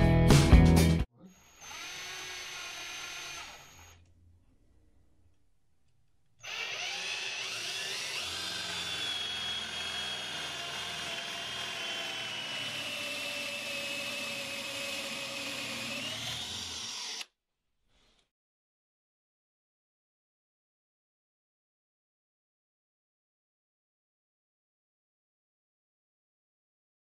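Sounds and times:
cordless drill boring into wood: 0:01.3 - 0:04.0, 0:06.4 - 0:17.3.

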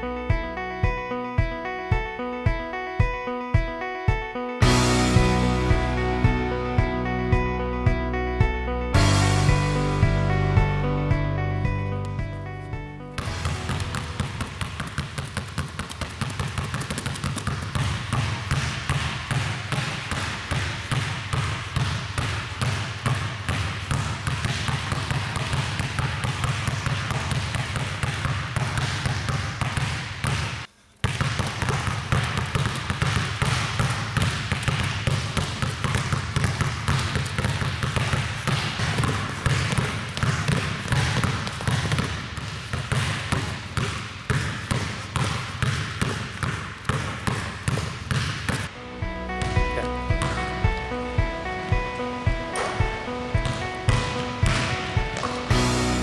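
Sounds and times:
basketballs bouncing on hardwood: 0:13.2 - 0:48.7, 0:51.7 - 0:55.8.

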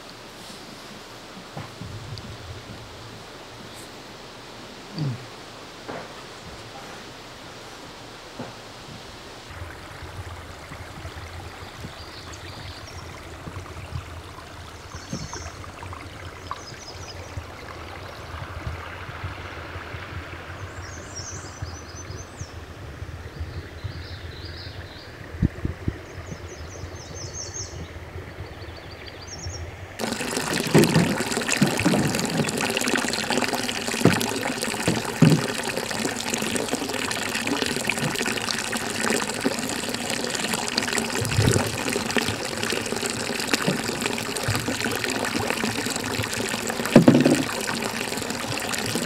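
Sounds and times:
water splashing into river: 0:30.0 - 0:49.0.

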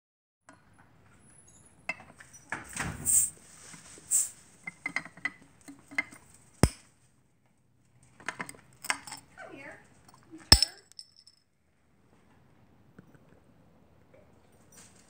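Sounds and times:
metal clicks and scraping: 0:08.3 - 0:09.2, 0:10.1 - 0:11.3
bottle cap popping off: 0:10.5 - 0:11.0.

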